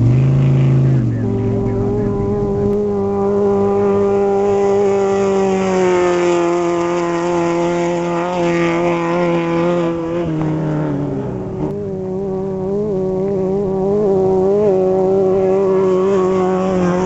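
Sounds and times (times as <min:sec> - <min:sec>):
race vehicle engine high pitch: 0:00.0 - 0:17.0.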